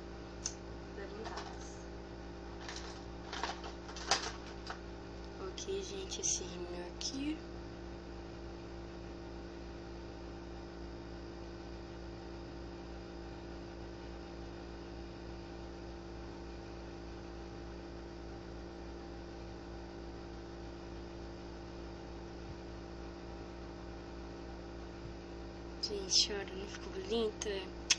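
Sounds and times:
steady hum of constant tones: 0.0s - 8.0s, 24.8s - 27.9s.

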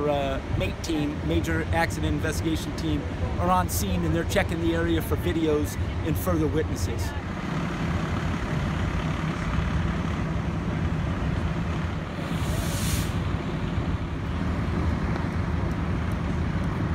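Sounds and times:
road traffic rumble: 0.0s - 16.9s
short hiss: 12.2s - 13.4s.

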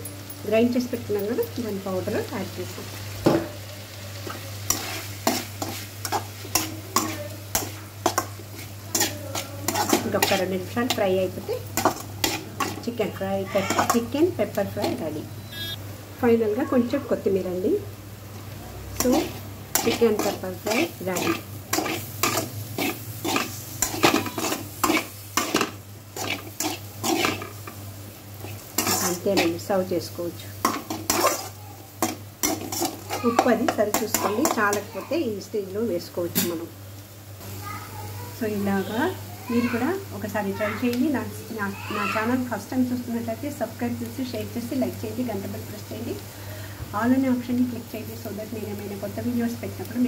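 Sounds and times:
frying sizzle: 0.0s - 50.0s
metal spatula scraping a pan: 4.2s - 14.1s, 19.0s - 27.8s, 28.4s - 29.7s, 30.6s - 34.9s.

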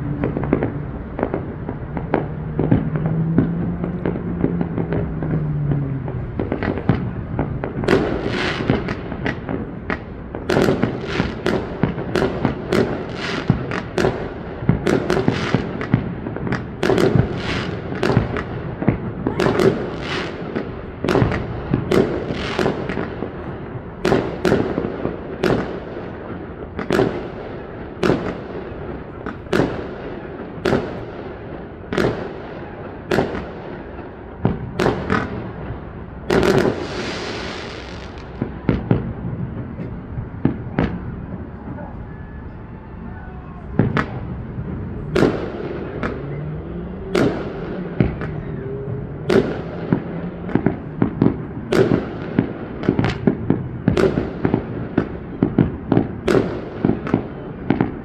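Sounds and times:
fireworks bursting with crackle: 0.0s - 58.0s.

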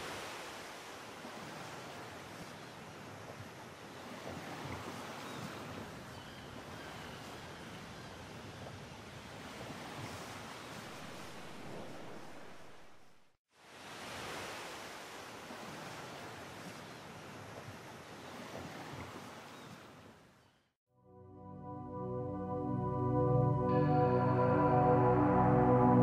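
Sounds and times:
sea waves: 0.0s - 20.4s
wind: 0.0s - 20.8s.

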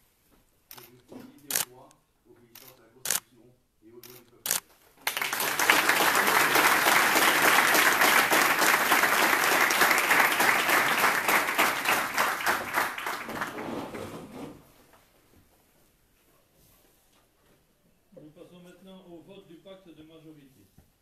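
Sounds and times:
people applauding: 5.0s - 14.0s.

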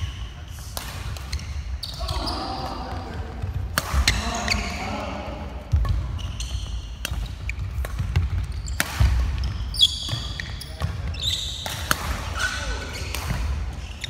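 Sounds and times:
racket hitting shuttlecock: 0.7s - 1.6s, 3.7s - 4.8s, 5.6s - 13.8s
sneakers squeaking on wooden floor: 1.1s - 5.1s, 5.7s - 14.0s.

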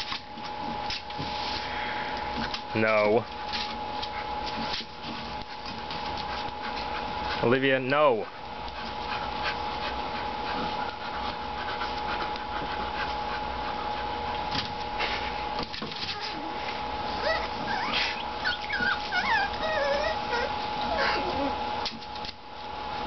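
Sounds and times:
puppies whimpering and yipping: 16.1s - 21.8s
puppy whining: 16.1s - 21.9s
high squeaks: 17.2s - 21.2s.

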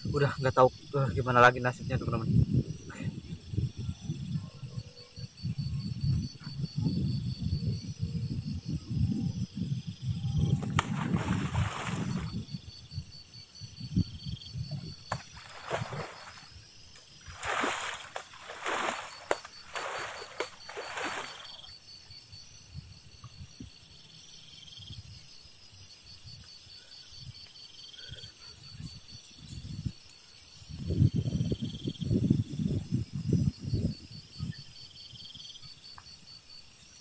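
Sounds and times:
insects chirping: 0.0s - 37.0s
splashes in river water: 10.5s - 12.4s, 15.1s - 21.7s.

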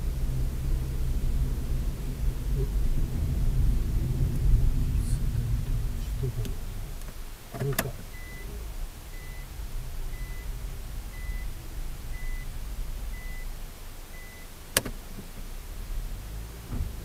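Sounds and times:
engine and tyre rumble: 0.0s - 17.0s
reverse warning beeps: 8.1s - 9.5s, 10.1s - 10.5s, 11.1s - 12.5s, 13.1s - 14.6s
sharp click: 14.7s - 15.0s.

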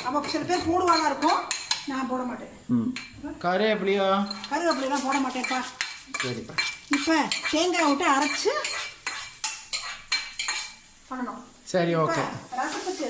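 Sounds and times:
woman's voice: 0.0s - 2.6s, 6.9s - 8.7s, 12.1s - 13.0s.

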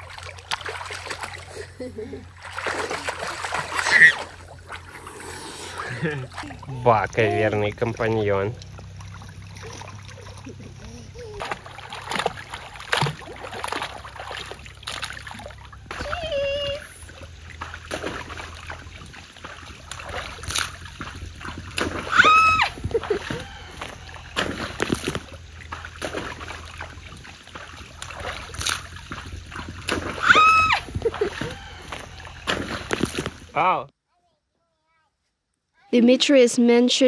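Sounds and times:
water splashing in pool: 0.0s - 33.7s
toddler voice: 10.8s - 11.5s, 34.1s - 35.2s.

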